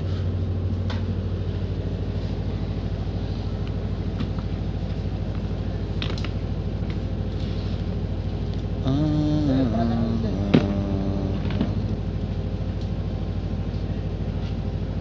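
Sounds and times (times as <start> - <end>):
generator humming: 0.0 - 15.0.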